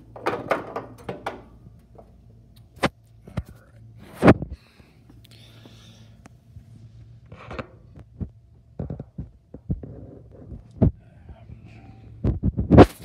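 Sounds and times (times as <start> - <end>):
handling knocks and clatter: 0.0 - 2.1
steady low hum: 0.0 - 13.0.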